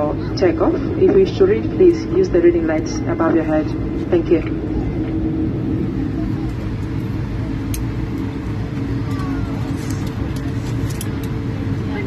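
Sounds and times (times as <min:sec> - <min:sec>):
aircraft cabin engine rumble: 0:00.0 - 0:12.0.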